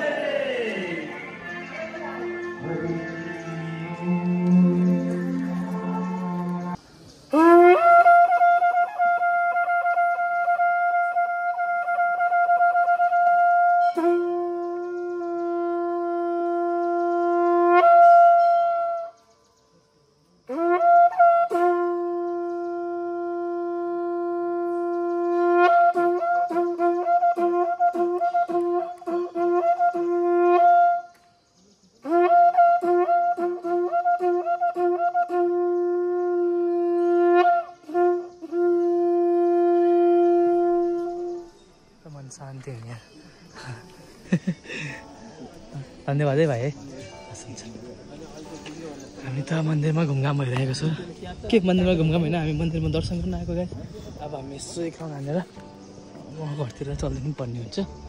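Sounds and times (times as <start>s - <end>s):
wind instrument holding long notes: 0.0s - 19.4s, 20.4s - 31.3s, 32.0s - 42.4s.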